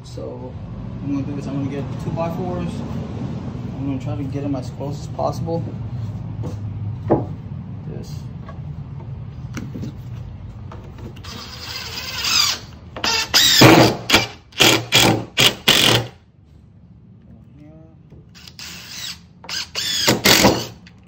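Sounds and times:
cordless driver driving screws: 11.2s - 16.1s, 18.3s - 21.0s.

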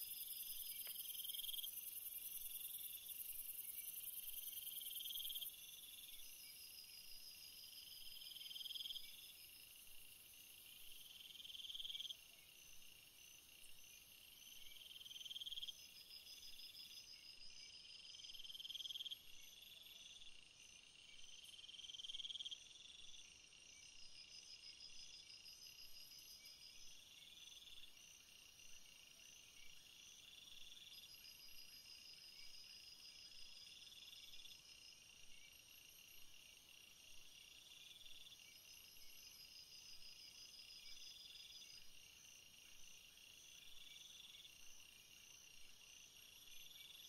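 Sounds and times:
crickets chirping: 0.0s - 47.0s
insect trill: 0.0s - 47.0s.

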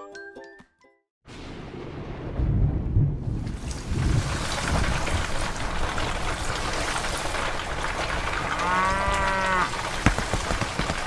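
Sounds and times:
steady rain: 1.4s - 11.0s
cow mooing: 8.4s - 9.8s.

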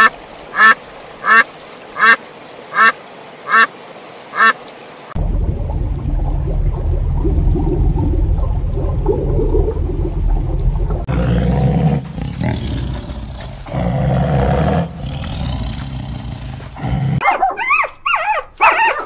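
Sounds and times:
ducks quacking: 0.0s - 3.7s, 4.4s - 4.6s
underwater ambience rumbling: 5.2s - 13.8s.

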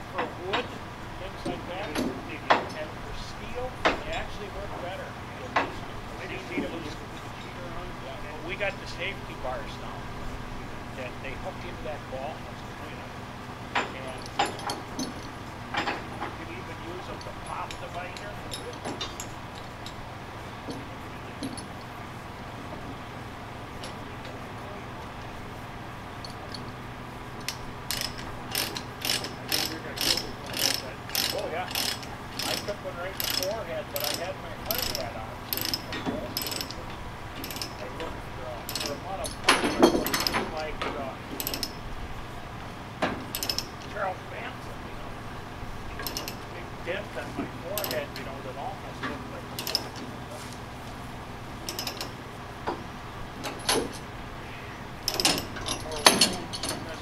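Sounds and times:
metallic clinks and rattles: 13.7s - 22.0s, 26.2s - 40.7s, 41.3s - 41.9s, 43.2s - 44.0s, 45.9s - 46.5s, 47.7s - 48.5s, 49.4s - 50.4s, 51.6s - 52.2s, 55.0s - 57.0s
ratchet pawl clicking: 27.4s - 40.7s, 41.3s - 41.9s, 43.3s - 44.0s, 46.0s - 46.5s, 47.7s - 48.4s, 49.5s - 50.0s, 51.6s - 52.8s, 55.0s - 57.0s.

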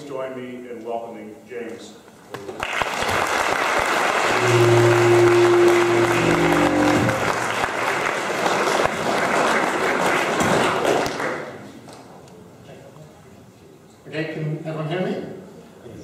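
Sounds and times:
audience applauding: 2.5s - 11.6s
low hum: 4.3s - 7.9s.

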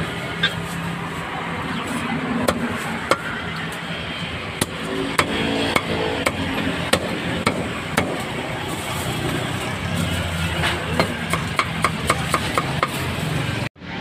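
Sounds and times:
street background noise: 0.0s - 14.0s
meat cleaver chopping on block: 10.9s - 13.0s.

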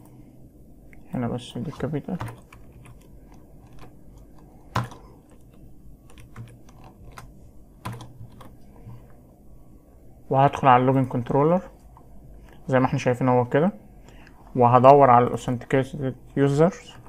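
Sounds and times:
keyboard keystrokes: 1.8s - 9.0s.

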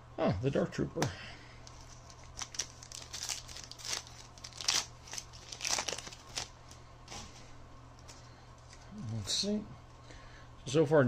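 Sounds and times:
cards being handled: 1.6s - 6.5s
foil wrapper crinkling: 1.6s - 7.4s.

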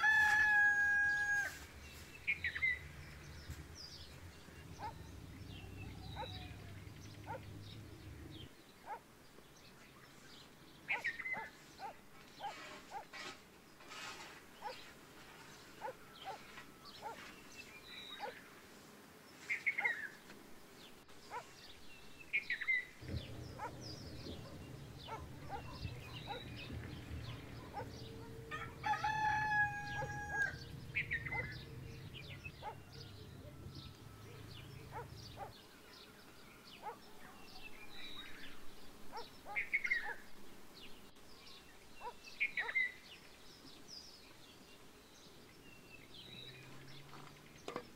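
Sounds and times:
rooster crowing: 0.0s - 1.7s, 5.5s - 7.0s, 27.7s - 35.1s
small birds chirping: 0.0s - 47.9s.

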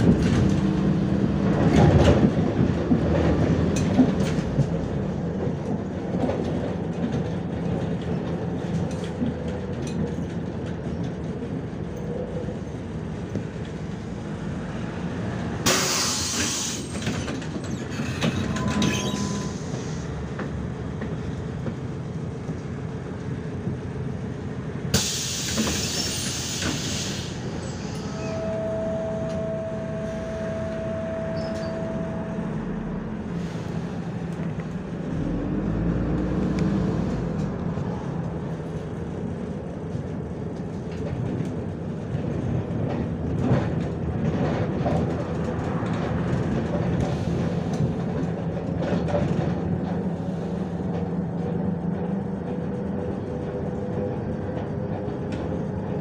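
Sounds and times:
bus engine and road rumble: 0.0s - 56.0s.

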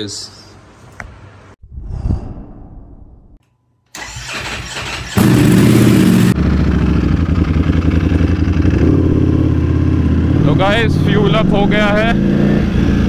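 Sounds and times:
motorcycle engine revving and idling: 4.8s - 13.0s.

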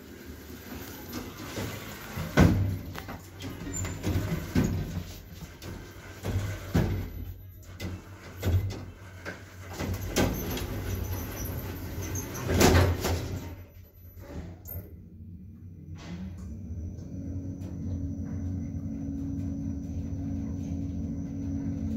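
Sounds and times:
sliding lift doors closing: 0.0s - 14.9s.

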